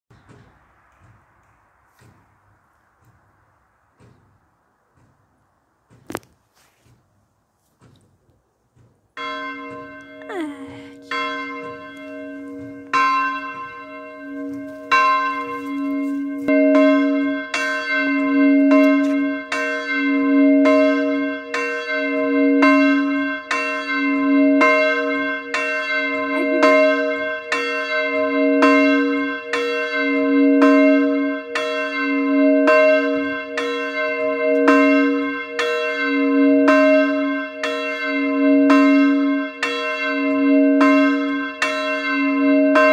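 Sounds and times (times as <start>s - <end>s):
church bell ringing: 9.2s - 42.9s.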